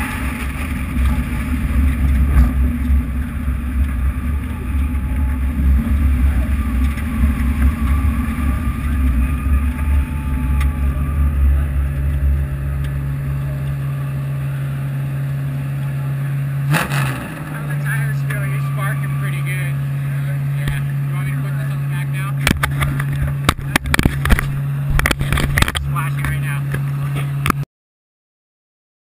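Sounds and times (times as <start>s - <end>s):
low wind rumble on microphone: 0.0s - 14.3s, 22.4s - 27.6s
car engine running: 0.0s - 27.6s.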